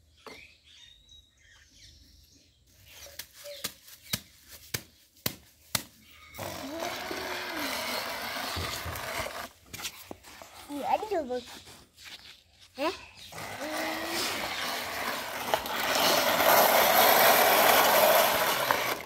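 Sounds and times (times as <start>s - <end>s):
toy truck scraping over dirt: 6.4s - 12.4s, 13.2s - 19.0s.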